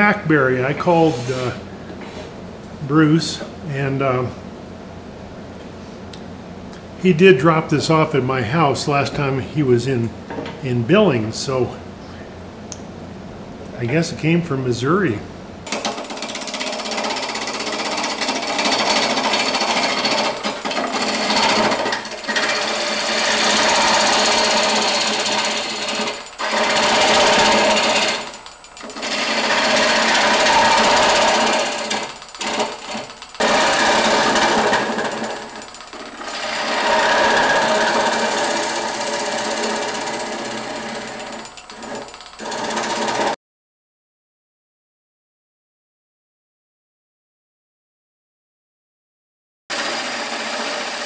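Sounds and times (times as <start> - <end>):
wood lathe gouge shearing wood: 0.8 - 1.6, 15.7 - 43.4, 49.7 - 51.0.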